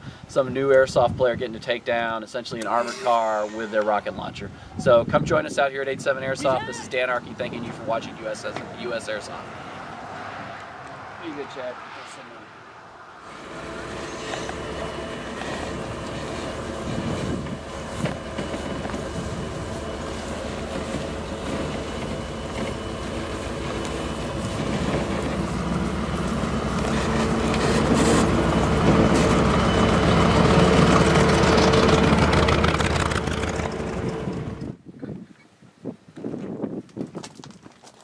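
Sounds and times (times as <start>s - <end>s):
armored car engine running: 13.3s - 34.8s.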